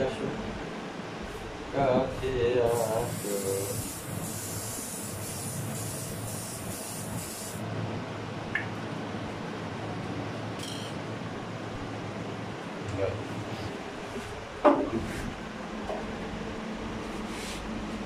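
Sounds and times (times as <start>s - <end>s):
aerosol spray hissing: 2.7s - 7.6s.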